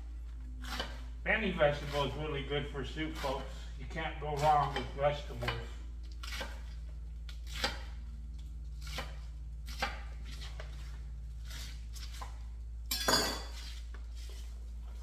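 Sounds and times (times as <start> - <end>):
knife chopping cabbage on board: 0.6 - 1.1, 4.4 - 8.0, 8.7 - 12.4.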